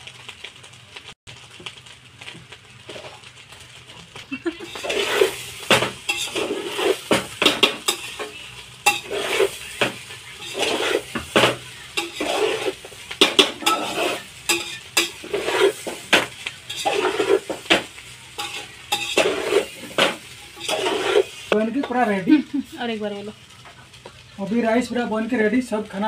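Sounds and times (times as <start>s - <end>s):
metal spatula scraping a pot: 4.6s - 21.6s.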